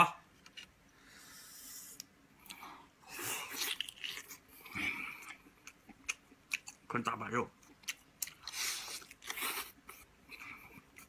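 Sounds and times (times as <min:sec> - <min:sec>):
wet chewing and mouth smacks: 0:03.5 - 0:06.9, 0:07.6 - 0:11.0.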